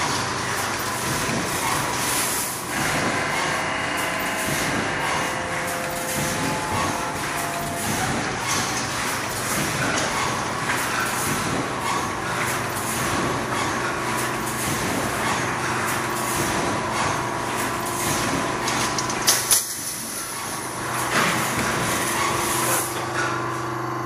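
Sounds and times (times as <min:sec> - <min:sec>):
machine mechanical din with clicks: 0:00.0 - 0:23.7
electrical hum: 0:00.0 - 0:24.0.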